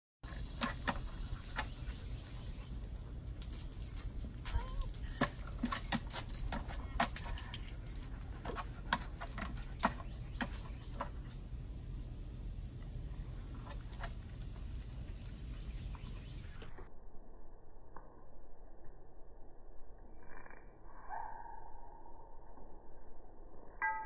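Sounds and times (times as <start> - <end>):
collar tags jingling: 0.3 - 11.4, 13.4 - 16.6
dog claws tapping on concrete: 0.6 - 11.4.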